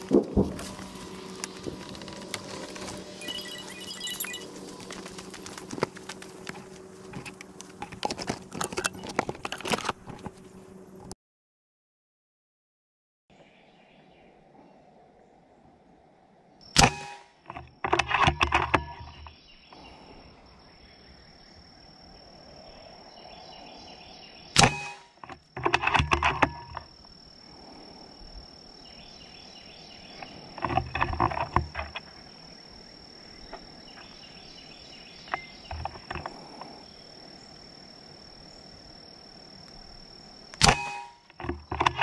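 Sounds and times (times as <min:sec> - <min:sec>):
rifle handling clicks and rattles: 0:04.8 - 0:10.4, 0:25.2 - 0:26.9, 0:40.6 - 0:42.0
air rifle shot: 0:16.8 - 0:17.3, 0:24.6 - 0:25.0, 0:40.6 - 0:41.2.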